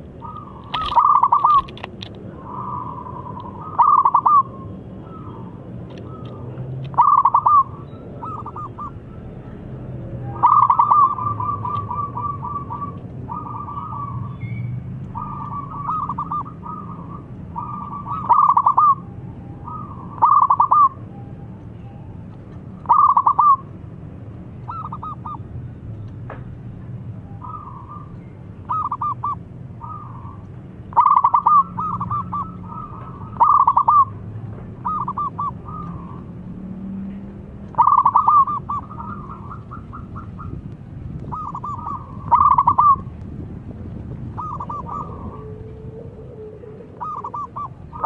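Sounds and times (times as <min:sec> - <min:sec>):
dove cooing: 0:00.0 - 0:09.4, 0:10.2 - 0:14.4, 0:15.1 - 0:21.0, 0:22.8 - 0:23.7, 0:24.7 - 0:25.4, 0:27.4 - 0:34.2, 0:34.8 - 0:36.4, 0:37.7 - 0:40.6, 0:41.2 - 0:43.1, 0:44.2 - 0:48.0.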